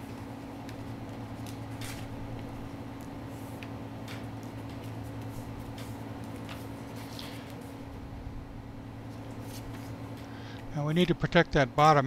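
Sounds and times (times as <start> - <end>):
steady low hum: 0.0 - 12.0
tape and paper crinkling: 3.0 - 7.7.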